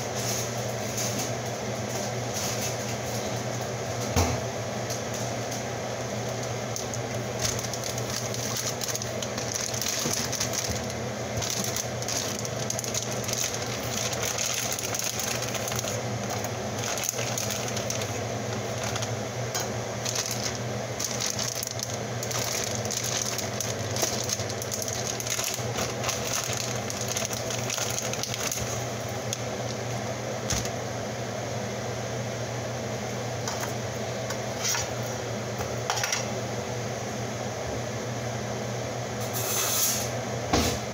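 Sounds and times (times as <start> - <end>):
appliance fan humming: 0.0 - 40.9
plastic bags rustling: 6.6 - 29.8.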